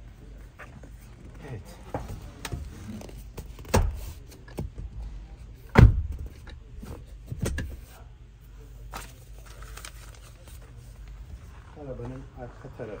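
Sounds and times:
clicks and knocks of car trim: 3.4s - 4.8s, 5.7s - 6.6s
heavy thud: 5.7s - 6.4s.

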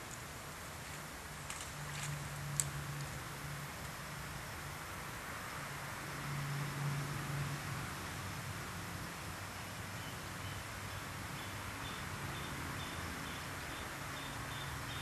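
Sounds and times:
steady outdoor hiss: 0.0s - 15.0s
cricket chirping: 10.0s - 15.0s.

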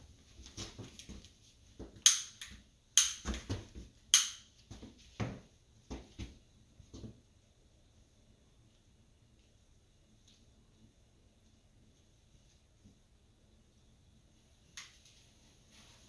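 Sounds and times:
handling knocks and rustling: 0.2s - 2.6s.

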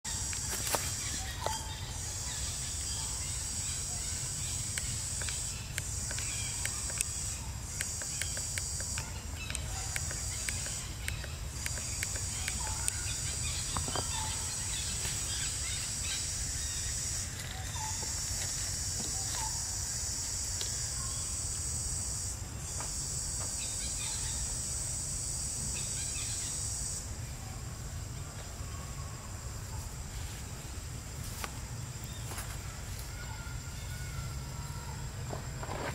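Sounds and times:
high-pitched insect buzzing: 0.1s - 27.1s.

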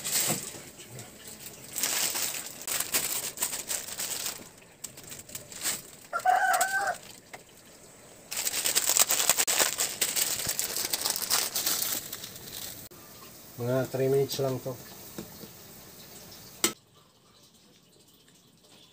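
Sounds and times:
plastic packets crinkling: 0.0s - 0.6s, 1.2s - 7.4s, 8.3s - 12.9s
chicken calling: 6.1s - 7.1s.

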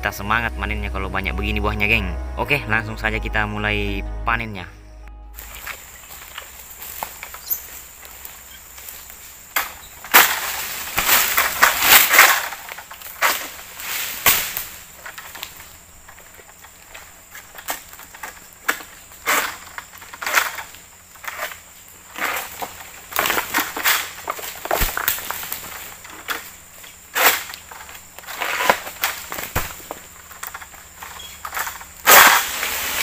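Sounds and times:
fronds crashing through leaves: 5.4s - 33.0s
blade cracking through stalks: 6.4s - 15.7s, 17.4s - 33.0s.

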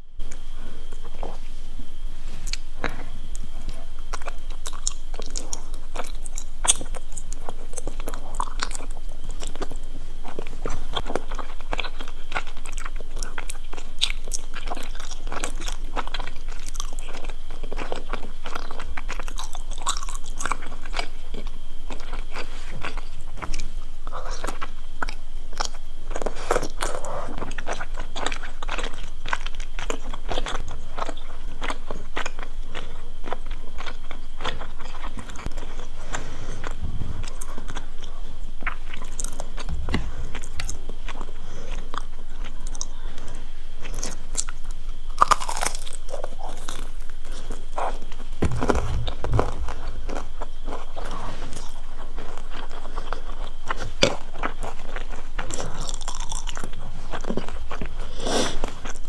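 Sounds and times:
person chewing: 0.0s - 59.0s
biting crispy food: 43.8s - 59.0s.

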